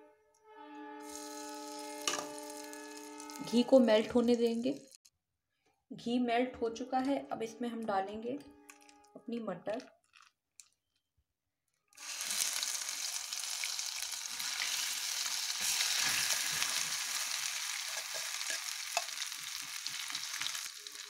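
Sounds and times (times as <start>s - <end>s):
peas sizzling in hot ghee: 1.0s - 5.0s, 12.0s - 21.0s
spoon stirring and scraping pan: 1.1s - 3.5s, 15.6s - 21.0s.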